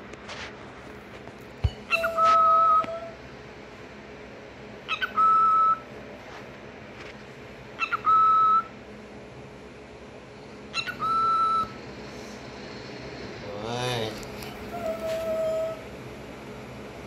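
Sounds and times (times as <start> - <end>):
cockatiel sharp chirp: 1.9 - 3.1, 4.9 - 5.8, 7.8 - 8.7, 10.8 - 11.8
cockatiel whistling: 1.9 - 3.2, 4.9 - 5.9, 7.8 - 8.7, 10.7 - 11.8, 14.6 - 15.8.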